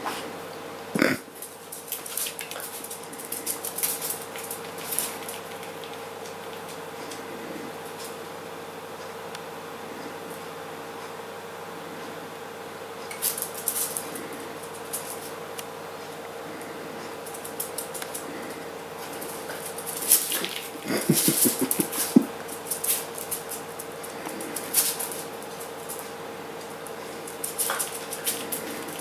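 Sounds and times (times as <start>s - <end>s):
dog claws pattering on vinyl floor: 1.4s - 7.2s, 13.1s - 15.4s, 17.2s - 29.0s.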